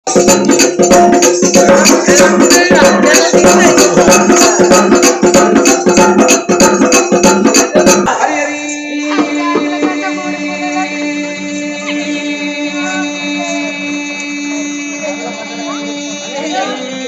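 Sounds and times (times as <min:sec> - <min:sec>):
frame drum struck with stick: 0:00.1 - 0:08.2
held musical tones: 0:00.1 - 0:17.0.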